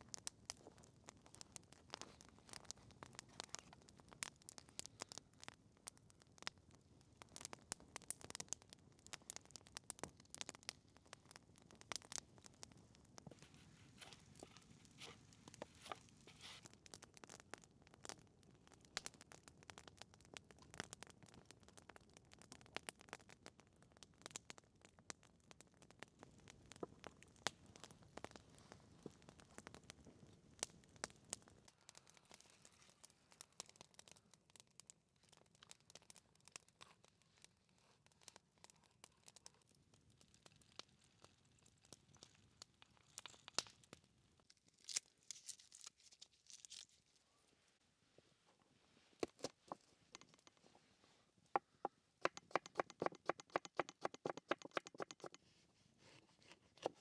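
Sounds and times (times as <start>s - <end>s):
small sharp clicks and crackles: 0.0s - 47.0s, 49.2s - 50.8s, 51.5s - 55.6s
knife scraping wooden stick: 52.2s - 55.4s.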